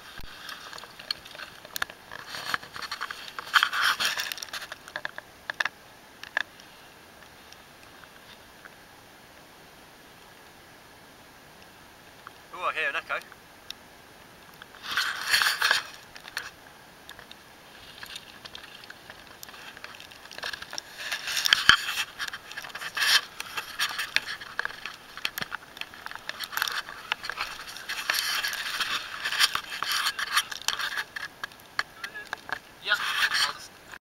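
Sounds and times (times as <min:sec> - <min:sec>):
gravel scraping and clattering: 0:00.0 - 0:06.7, 0:14.6 - 0:33.7.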